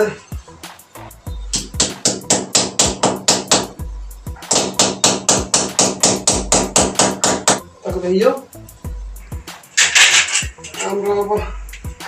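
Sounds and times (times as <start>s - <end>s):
hammer striking wall: 1.6s - 3.8s, 4.5s - 7.6s.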